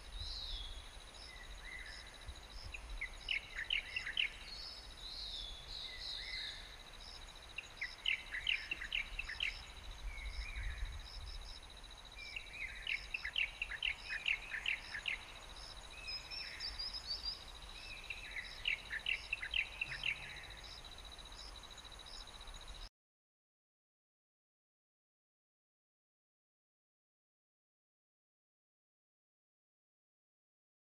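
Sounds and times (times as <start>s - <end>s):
songbird singing: 0.0s - 22.9s
high insect trill: 0.1s - 22.9s.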